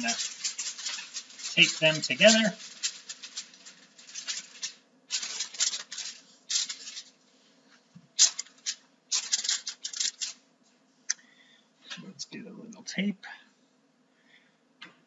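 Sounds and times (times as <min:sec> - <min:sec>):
aluminium foil rustling and crinkling: 0:00.0 - 0:07.2, 0:08.2 - 0:10.4.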